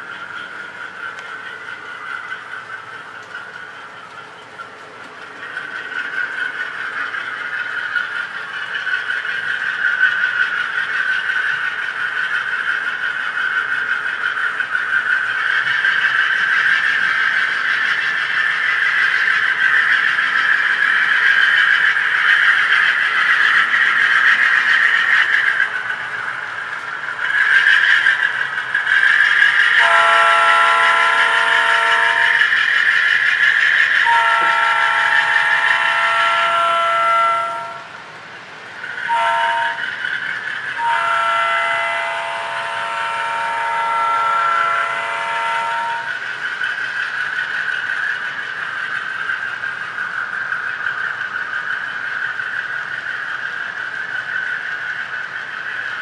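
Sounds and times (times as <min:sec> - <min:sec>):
diesel locomotive engine through speaker: 0:00.0 - 0:56.0
multi-chime air horn blasts: 0:34.1 - 0:37.8.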